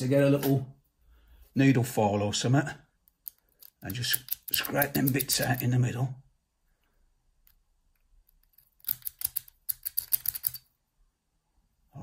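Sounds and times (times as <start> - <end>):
metal tool scratching in lock: 3.2 - 5.6, 8.3 - 10.7.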